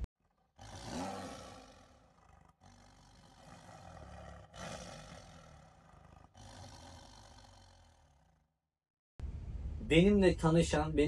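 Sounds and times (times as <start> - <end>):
large dog growling and snarling: 0.4 - 8.5.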